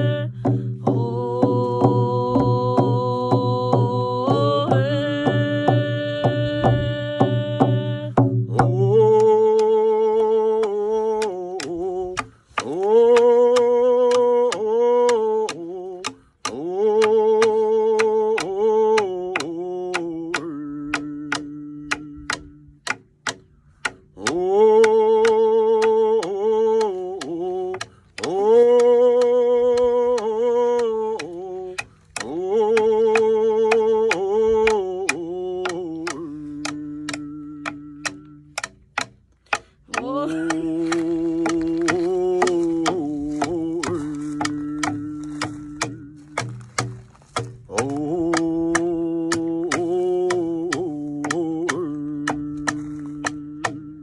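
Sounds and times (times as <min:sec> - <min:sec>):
frame drums struck with beaters: 0:00.0 - 0:10.0, 0:10.6 - 0:54.0
person singing long phrases: 0:00.0 - 0:23.4, 0:24.2 - 0:39.1, 0:39.9 - 0:54.0.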